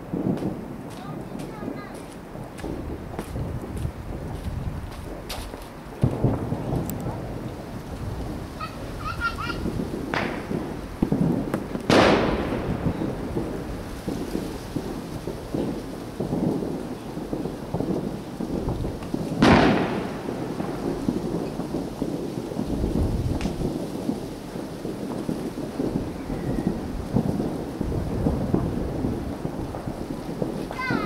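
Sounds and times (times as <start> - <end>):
distant fireworks rumble: 0.0 - 31.0
loud sharp firework bang: 4.1 - 7.3, 8.5 - 22.2, 22.8 - 24.3.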